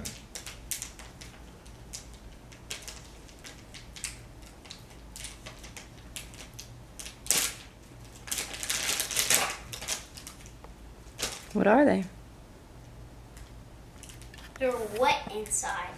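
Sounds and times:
plastic packaging crinkling: 0.0 - 11.6.

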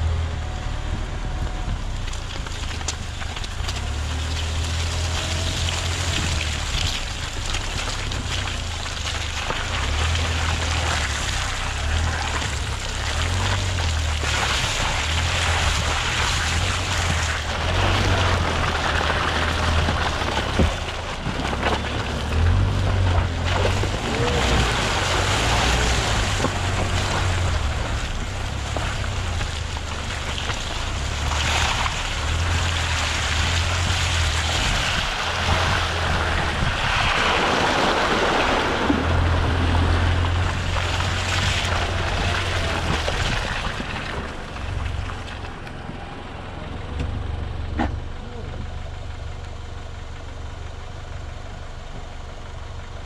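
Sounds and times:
car engine drone: 0.0 - 53.0
tyres splashing through mud: 0.0 - 53.0.

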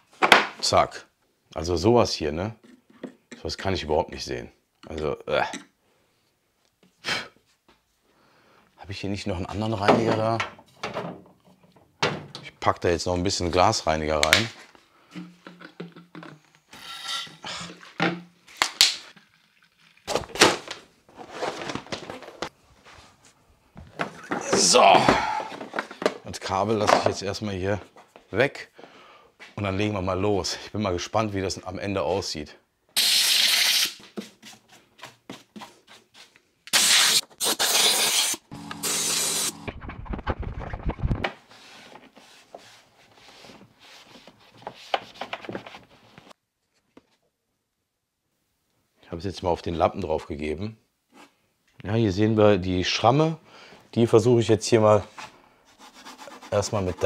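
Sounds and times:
mat rustling and scraping: 20.1 - 26.2, 39.9 - 47.2
compressed air hissing bursts: 36.7 - 39.6.

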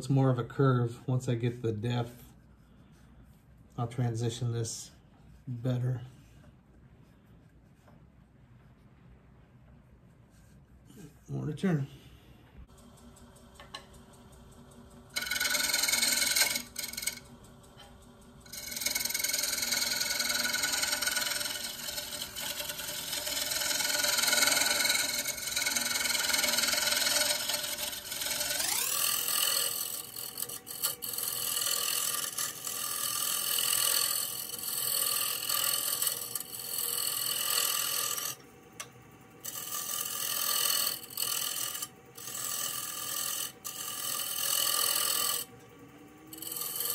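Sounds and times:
lathe motor hum: 12.7 - 46.9
gouge shearing and scraping wood: 15.2 - 17.2, 18.5 - 38.4, 39.4 - 45.6, 46.3 - 46.9.

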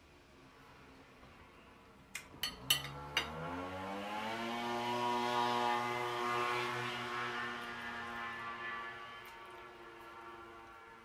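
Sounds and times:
cutlery clinking on plate: 2.4 - 3.4
motor hum rising in pitch: 3.0 - 11.0.

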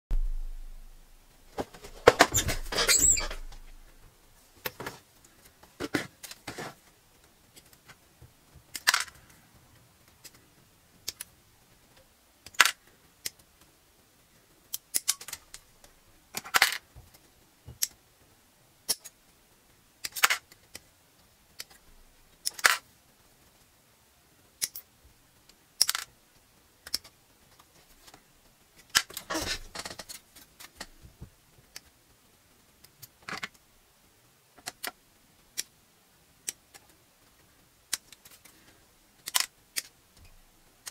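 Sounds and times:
plastic clattering: 1.5 - 3.9.

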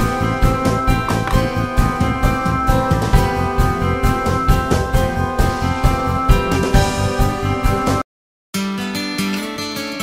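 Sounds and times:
upbeat music with synth: 0.0 - 8.0.

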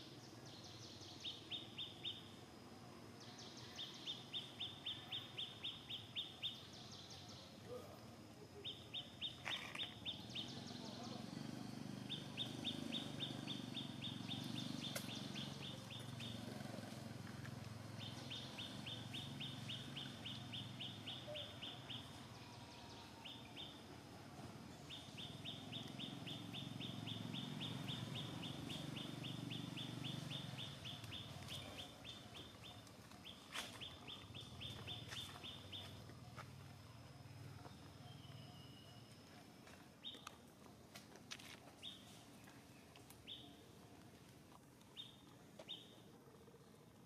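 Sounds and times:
faint low background noise: 0.0 - 47.0
bird chirping in high trills: 24.7 - 36.0.

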